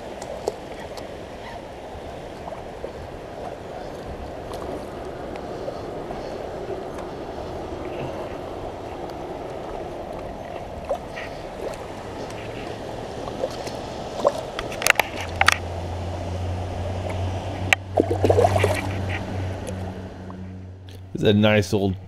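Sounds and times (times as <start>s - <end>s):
low steady hum: 0.0s - 22.0s
shallow river water running: 0.0s - 22.0s
fish splashing: 7.7s - 19.8s.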